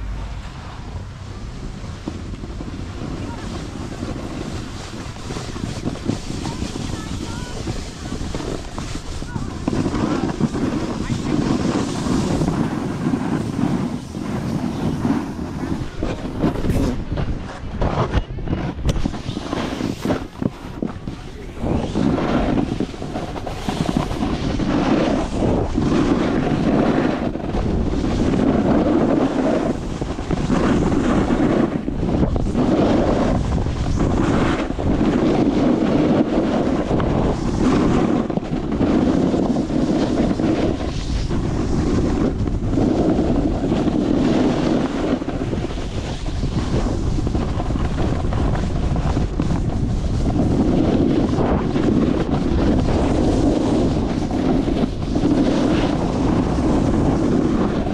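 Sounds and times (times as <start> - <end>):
snowboard sliding over snow: 0.0 - 57.9
wind buffeting microphone: 0.0 - 57.9.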